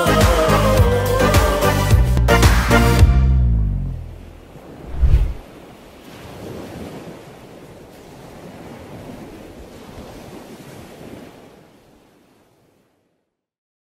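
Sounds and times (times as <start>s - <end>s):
sea waves and surf: 3.9s - 13.3s.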